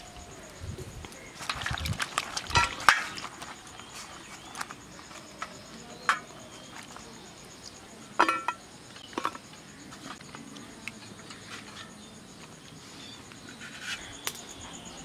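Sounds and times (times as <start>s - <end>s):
insect chirping faintly: 0.0s - 15.0s
steel bowl clinks and knocks: 8.2s - 9.4s.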